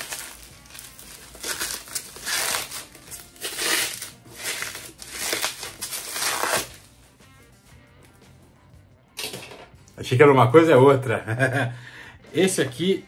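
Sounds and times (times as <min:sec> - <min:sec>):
plastic wrap crinkling and tearing: 0:00.0 - 0:06.9.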